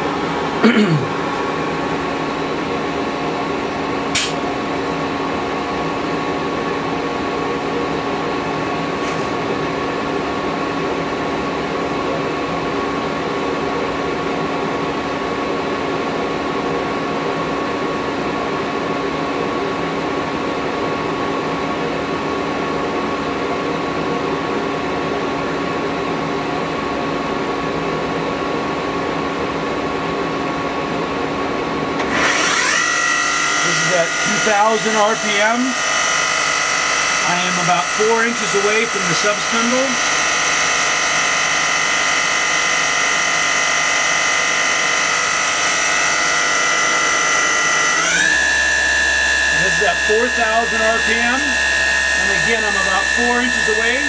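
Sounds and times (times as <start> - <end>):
lathe mechanical hum: 0.0 - 54.0
sharp click: 4.1 - 4.4.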